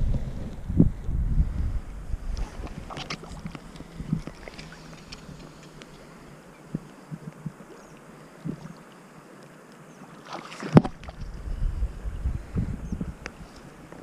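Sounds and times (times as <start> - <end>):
microphone handling noise: 0.0 - 5.5, 10.7 - 14.0
wind hiss: 0.0 - 9.4, 10.4 - 14.0
river water: 0.0 - 14.0.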